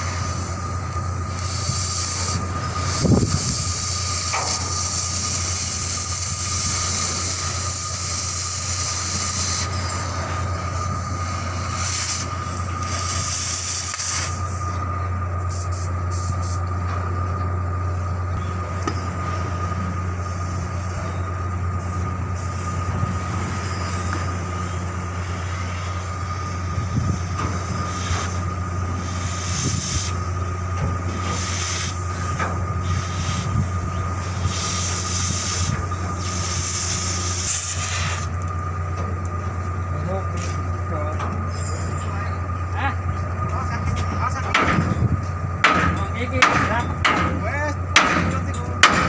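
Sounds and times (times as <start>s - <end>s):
hiss: 0.0s - 14.8s, 15.5s - 16.7s, 22.4s - 38.4s
thin whine: 0.0s - 48.8s
low mechanical hum: 0.0s - 49.0s.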